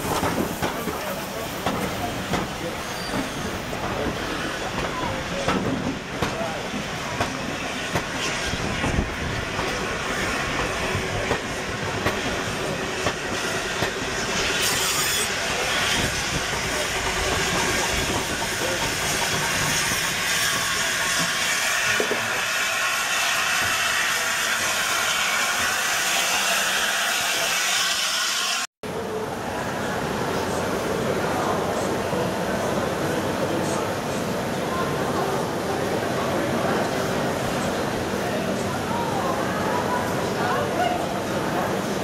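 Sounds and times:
train wheels clicking over rail joints: 0:00.0 - 0:06.6
steam hissing: 0:00.0 - 0:28.7.

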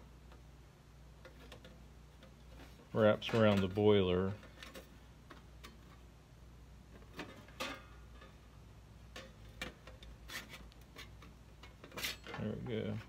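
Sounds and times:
faint workshop hum: 0:00.0 - 0:13.0.

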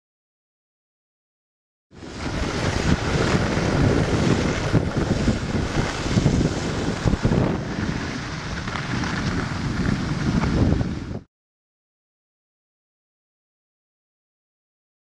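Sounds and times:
wind buffeting microphone: 0:02.0 - 0:11.3.

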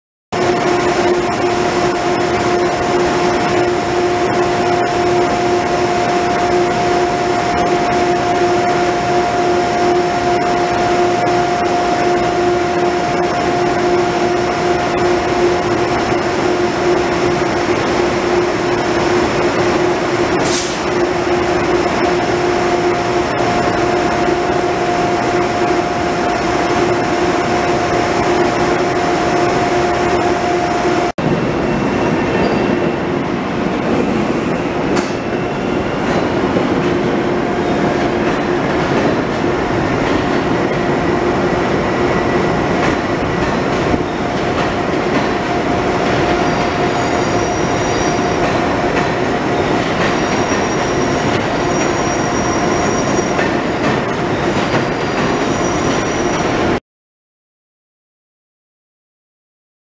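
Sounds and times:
machinery drone: 0:00.4 - 0:54.4
short sharp hiss: 0:20.4 - 0:20.8.

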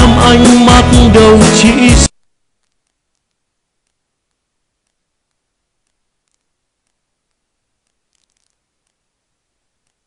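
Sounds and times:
faint clicks: 0:02.2 - 0:09.1, 0:09.8 - 0:10.0.

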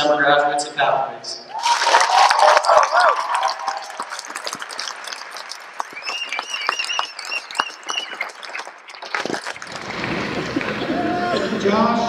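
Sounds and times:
high wavering cheer: 0:01.5 - 0:08.3
audience clapping: 0:01.6 - 0:11.5.

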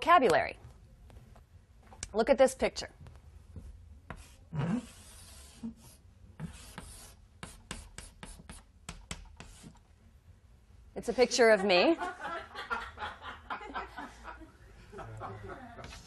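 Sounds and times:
chalk scraping on blackboard: 0:04.1 - 0:09.8
chalk taps on blackboard: 0:06.5 - 0:09.8.

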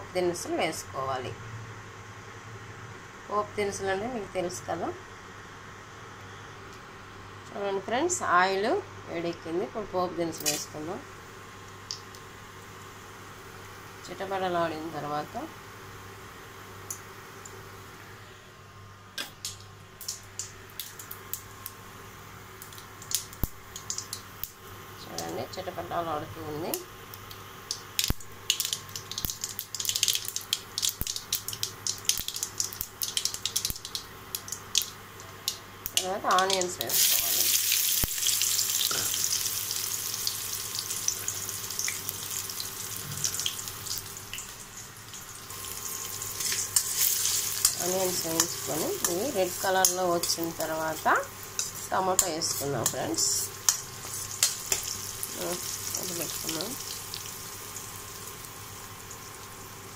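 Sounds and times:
low steady hum: 0:00.0 - 0:59.9
steady sizzle: 0:00.0 - 0:59.9
spices spluttering in hot oil: 0:19.2 - 0:21.8, 0:22.5 - 0:25.5, 0:26.5 - 0:59.9.

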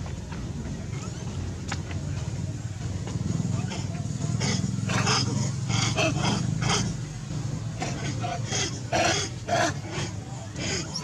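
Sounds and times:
steady low hum: 0:00.0 - 0:11.0
macaques squealing and barking: 0:03.7 - 0:07.0, 0:07.8 - 0:11.0.

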